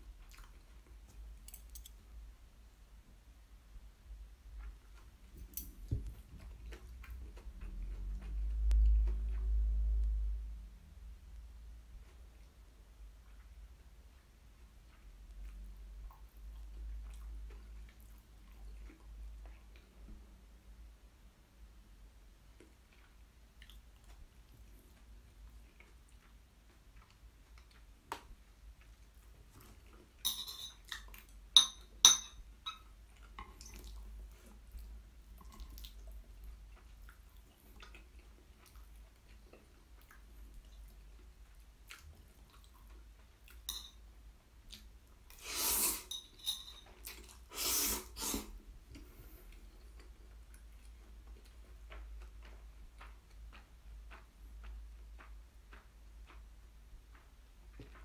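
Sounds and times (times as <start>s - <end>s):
faint chewing: 0.0s - 2.2s, 4.1s - 10.6s, 11.3s - 20.4s, 22.4s - 58.0s
loud noodle slurps: 45.3s - 46.1s, 47.5s - 48.6s.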